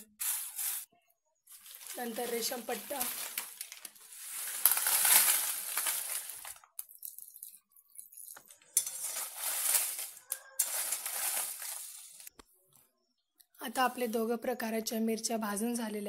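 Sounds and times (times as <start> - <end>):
dried chillies rattling in metal pan: 1.5 - 7.3, 8.7 - 12.3.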